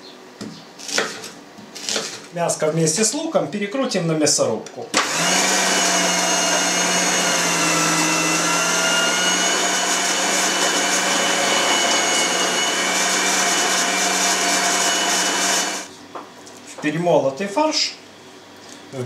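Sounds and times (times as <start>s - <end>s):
meat grinder motor humming and whining: 5.0s - 15.9s.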